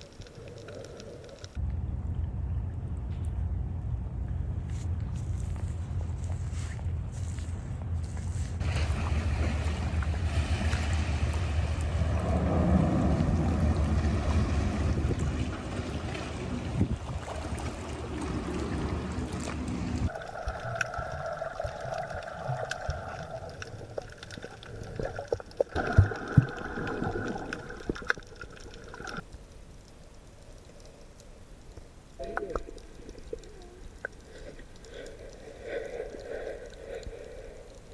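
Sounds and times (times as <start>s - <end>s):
wind rumble on microphone: 1.5s - 20.1s.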